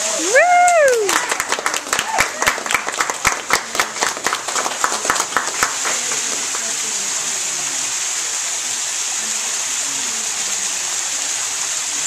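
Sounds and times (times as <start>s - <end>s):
waterfall hissing into pool: 0.0s - 12.0s
hands clapping: 0.5s - 6.8s.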